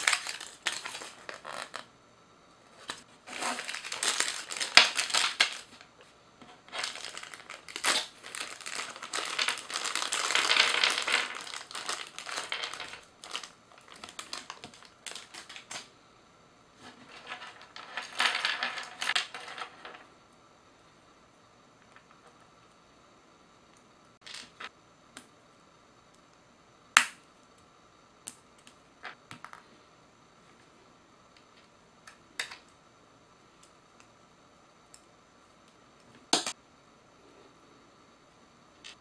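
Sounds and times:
plastic bag crinkling: 0:00.0 - 0:01.8, 0:03.2 - 0:05.8, 0:06.6 - 0:15.8.

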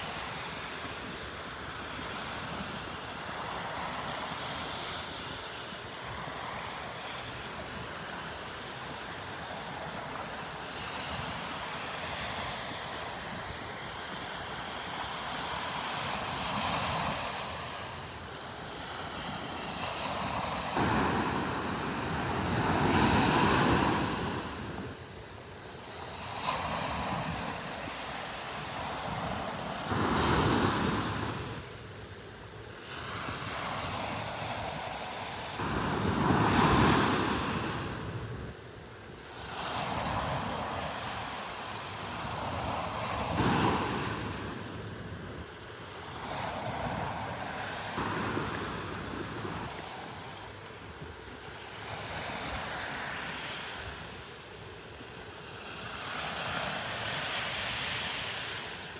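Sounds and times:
small waves breaking on sand: 0:00.0 - 0:58.9.

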